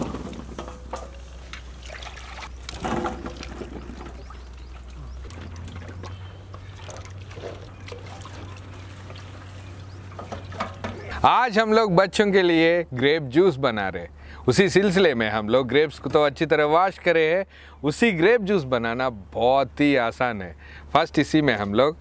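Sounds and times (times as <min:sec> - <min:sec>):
water trickling and dripping: 0:00.9 - 0:10.8.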